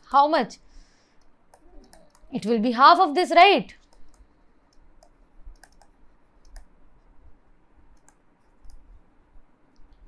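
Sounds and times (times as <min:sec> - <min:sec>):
stylus tapping on tablet screen: 0:03.8 - 0:07.1.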